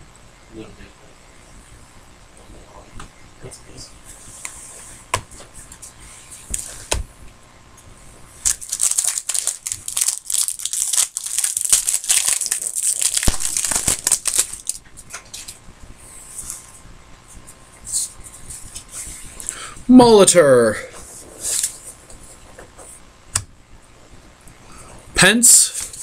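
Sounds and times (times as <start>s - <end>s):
foil wrapper tearing and crinkling: 8.4s - 14.8s.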